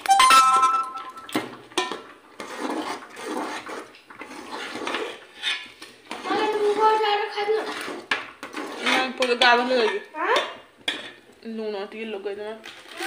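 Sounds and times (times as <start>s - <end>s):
pudding sloshing as stirred: 1.2s - 9.8s.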